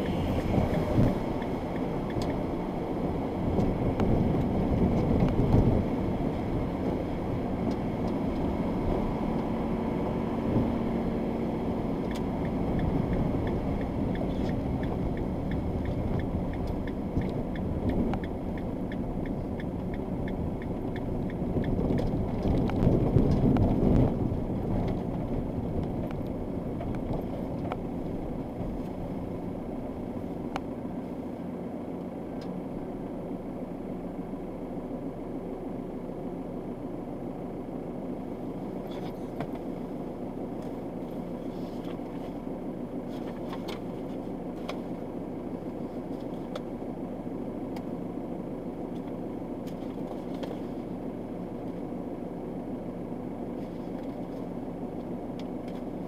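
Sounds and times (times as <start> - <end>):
vehicle engine and tyre noise: 0.0 - 56.0
light ticking: 12.0 - 22.9.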